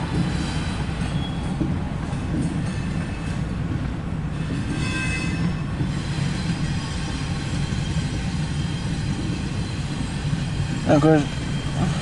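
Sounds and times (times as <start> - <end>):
freight train wheels rumbling: 0.0 - 12.0
faint high squeal: 1.1 - 1.6.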